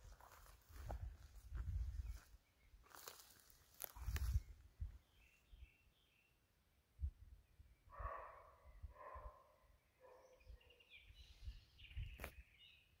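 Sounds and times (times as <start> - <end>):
faint birdsong: 0.0 - 13.0.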